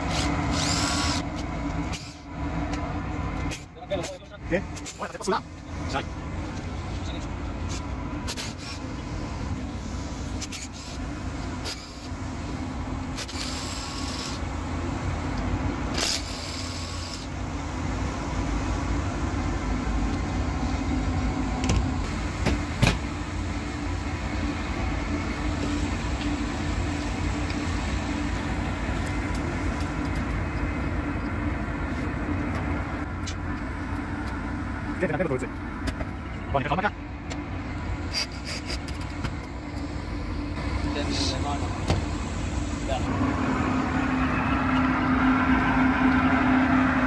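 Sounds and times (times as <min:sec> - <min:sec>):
low mechanical hum: 0:00.0 - 0:47.0
cordless drill running: 0:00.1 - 0:01.2.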